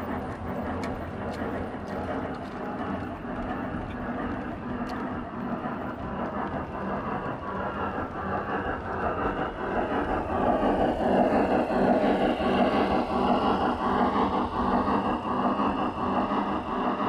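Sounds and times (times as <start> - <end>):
model train wagons rumbling on track: 0.0 - 17.0.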